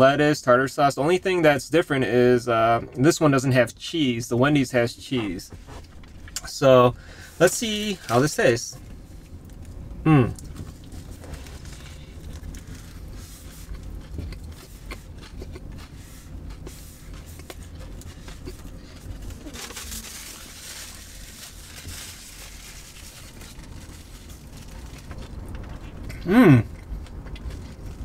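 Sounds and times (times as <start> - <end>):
low steady hum: 0.0 - 28.0
crunchy chewing: 9.2 - 20.6, 22.7 - 28.0.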